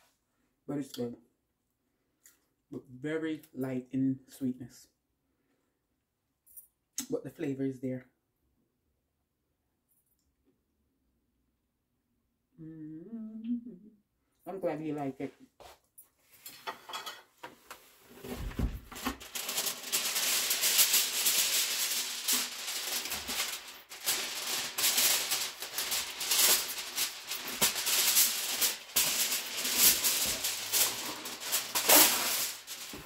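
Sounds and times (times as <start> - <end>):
aluminium foil crinkling: 18.3 - 33.0.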